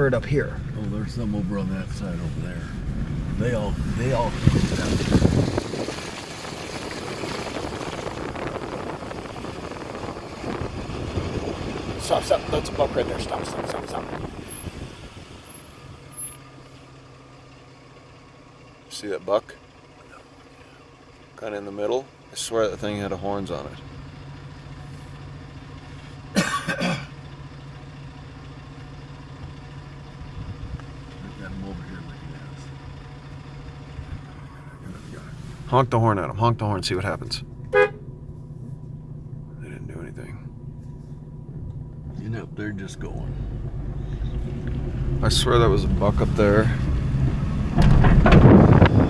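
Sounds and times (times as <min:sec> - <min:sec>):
vehicle engine rumble: 0:00.0 - 0:49.0
person coughing: 0:26.3 - 0:27.1.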